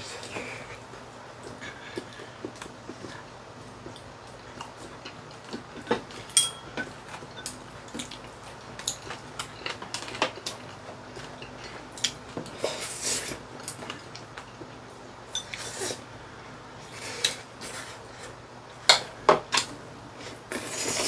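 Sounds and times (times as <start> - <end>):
ringing clink on a bowl: 6.4 - 6.8.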